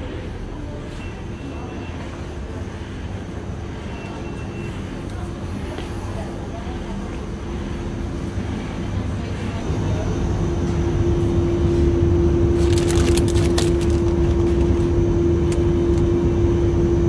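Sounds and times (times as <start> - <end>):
refrigerated shelf humming: 0.0 - 17.0
plastic wrapper crinkling: 12.6 - 14.8.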